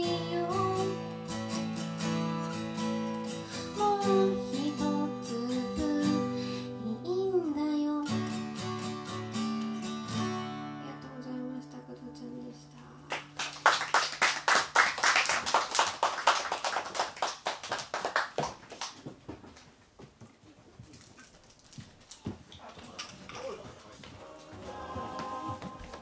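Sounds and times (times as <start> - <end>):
acoustic guitar chord ringing: 0.0 - 7.2, 8.2 - 13.1
audience applauding: 13.1 - 19.0, 24.2 - 26.0.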